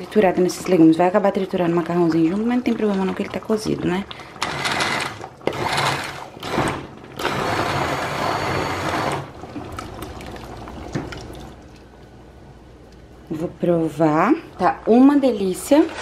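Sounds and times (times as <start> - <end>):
immersion blender running: 4.4 - 9.3.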